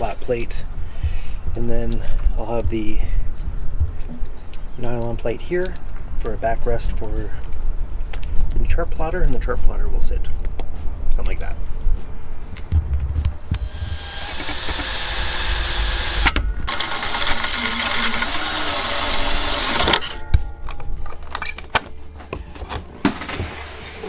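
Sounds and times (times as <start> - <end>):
power drill running: 13.6 - 20.2.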